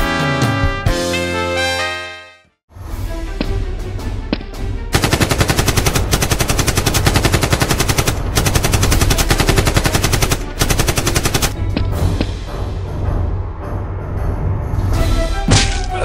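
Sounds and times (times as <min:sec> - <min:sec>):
machine-gun fire: 0:05.0 - 0:11.6.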